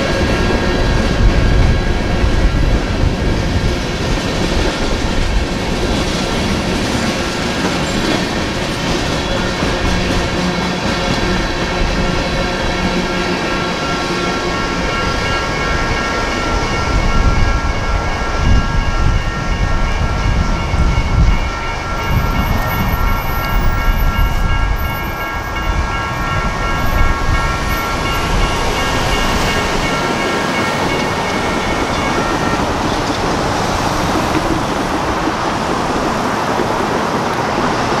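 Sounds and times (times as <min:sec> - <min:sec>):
freight train rumbling and clacking: 0:00.0 - 0:38.0
crossing bells ringing: 0:05.0 - 0:38.0.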